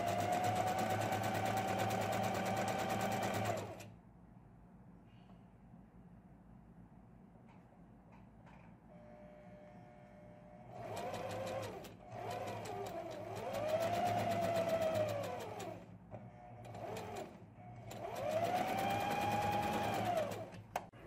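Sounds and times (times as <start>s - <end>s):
sewing machine motor whine: 0.0s - 3.9s, 10.6s - 20.6s.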